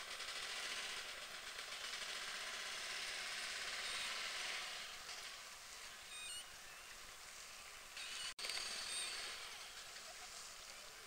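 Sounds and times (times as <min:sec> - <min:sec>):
steady outdoor hiss: 0:00.0 - 0:11.0
faint high chirps: 0:05.8 - 0:10.9.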